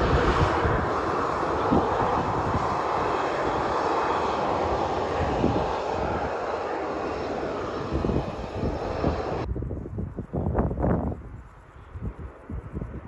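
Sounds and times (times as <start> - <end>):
jet engines roaring: 0.0 - 9.5
wind buffeting microphone: 0.0 - 13.0.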